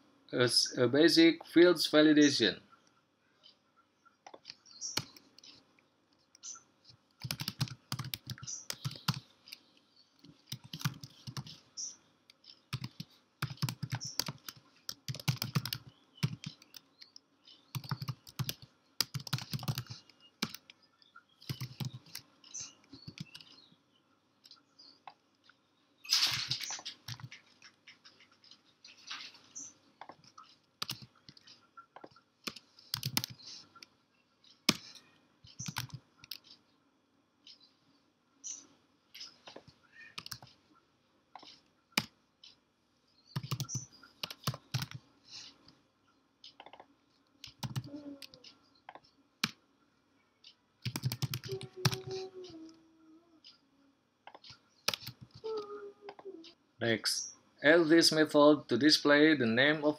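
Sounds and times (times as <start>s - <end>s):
typing on computer keyboard: 7.2s - 9.3s, 10.5s - 11.6s, 12.7s - 16.9s, 17.6s - 20.7s, 21.4s - 22.3s, 23.0s - 23.5s, 26.7s - 28.3s, 30.8s - 33.5s, 34.7s - 36.4s, 40.2s - 40.5s, 43.3s - 45.0s, 46.6s - 48.4s, 50.8s - 52.2s, 54.3s - 55.5s.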